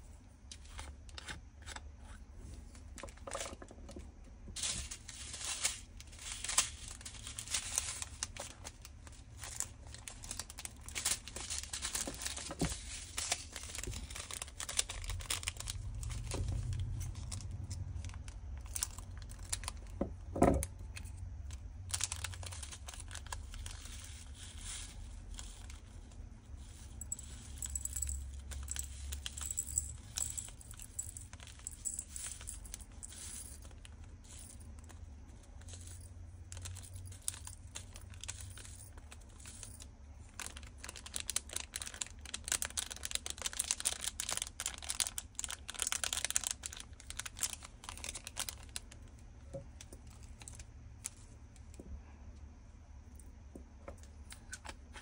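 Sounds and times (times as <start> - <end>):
plastic bags crinkling and tearing: 4.6 - 20.2, 21.4 - 34.8, 35.6 - 49.2.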